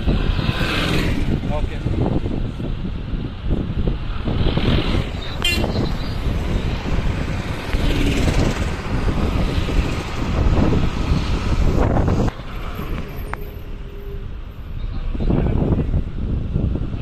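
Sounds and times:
car engine and tyre rumble: 0.0 - 17.0.

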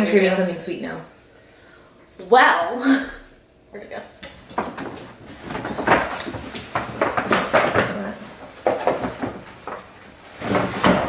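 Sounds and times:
food packaging rustling and clattering: 4.3 - 11.0.

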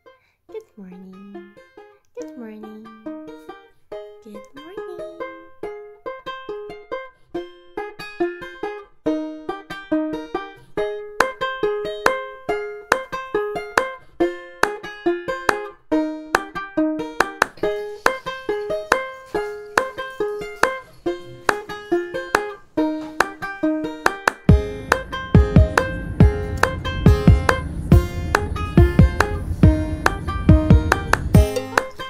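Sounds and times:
plucked-string melody: 0.0 - 32.0
light beat: 11.2 - 15.7, 16.3 - 32.0.

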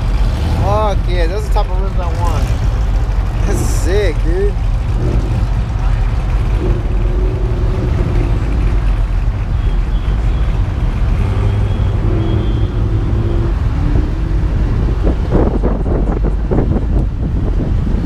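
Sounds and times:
pickup truck engines rumbling: 0.0 - 18.0
wind buffeting microphone: 12.8 - 18.0.

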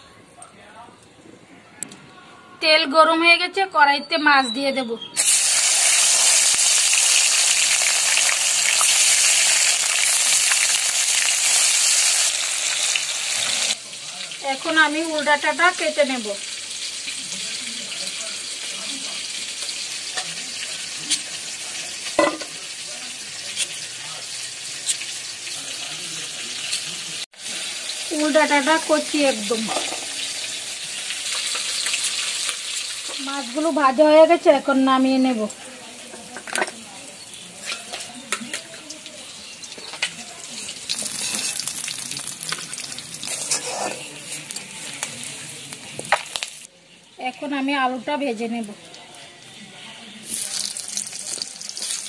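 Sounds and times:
fish sizzling in hot oil: 5.2 - 52.0
spatula scraping a pan: 37.6 - 38.1, 41.1 - 41.7, 43.2 - 44.7.

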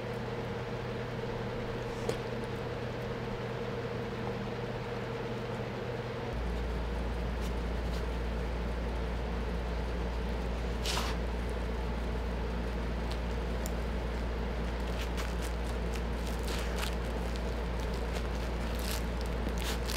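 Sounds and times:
steady low hum: 0.0 - 19.9
dog rustling fabric purse: 12.6 - 19.9.

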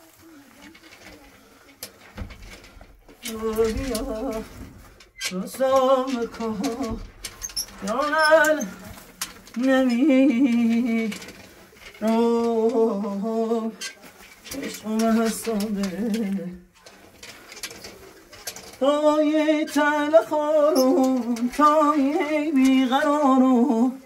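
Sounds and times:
person singing with vibrato: 3.2 - 11.4, 12.0 - 16.7, 18.8 - 24.0.

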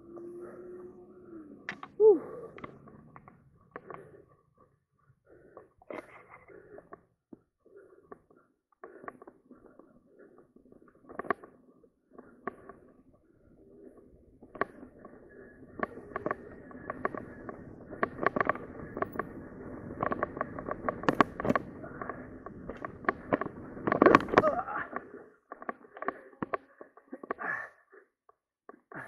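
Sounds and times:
bike tyres on dirt trail: 14.6 - 25.6
bike knocks and rattles: 15.8 - 24.7.

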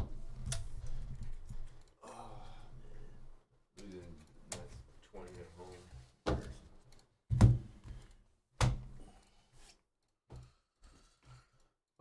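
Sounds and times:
objects thumping on a table: 7.3 - 7.9.

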